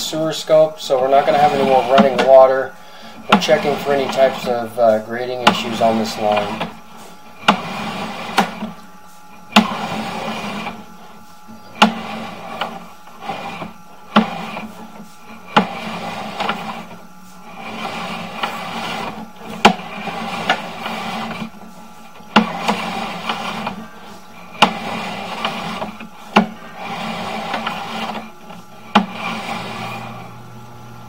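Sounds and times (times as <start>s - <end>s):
cable scraping on reel: 0.0s - 30.4s.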